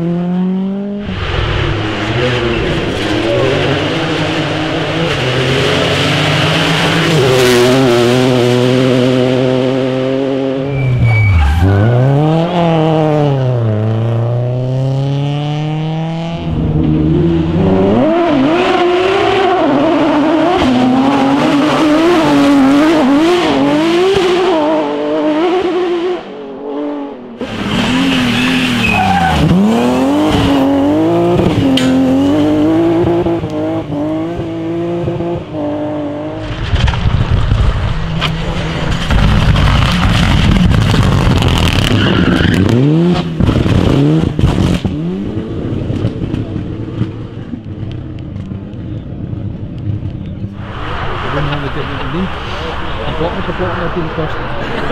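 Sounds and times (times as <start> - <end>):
rally car engine revving: 0.0 - 54.9
tyre squeal: 10.6 - 12.6, 27.6 - 30.8, 41.8 - 42.8.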